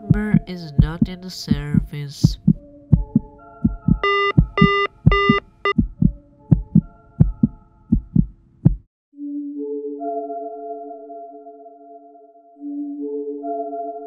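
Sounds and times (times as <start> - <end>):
heartbeat thumps: 0.0 - 8.9
phone line tone beeps: 4.0 - 5.8.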